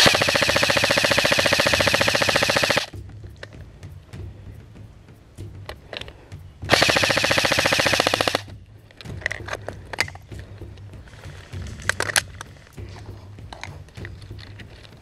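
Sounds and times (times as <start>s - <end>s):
airsoft gun full-auto burst: 0.0s - 2.9s, 6.7s - 8.5s
sharp clicks: 0.0s - 3.0s, 6.7s - 10.2s.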